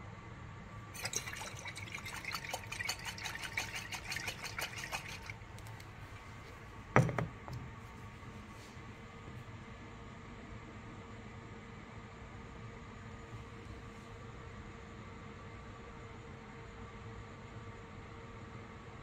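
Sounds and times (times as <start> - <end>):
liquid sloshing in glass flask: 1.0 - 6.3
glass flask set down on tray: 7.0 - 7.7.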